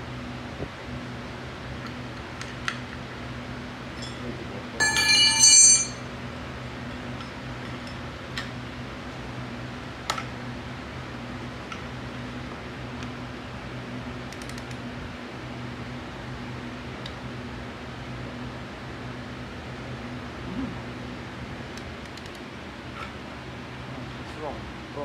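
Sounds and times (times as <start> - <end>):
steady low hum: 0.0 - 25.0
metal tools clattering: 4.8 - 6.0.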